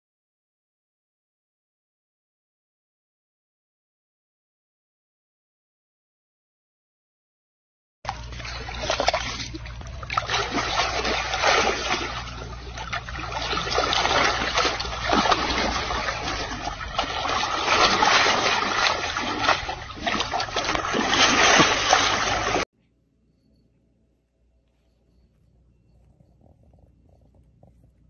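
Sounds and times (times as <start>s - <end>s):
water splashing and trickling: 8.1s - 22.7s.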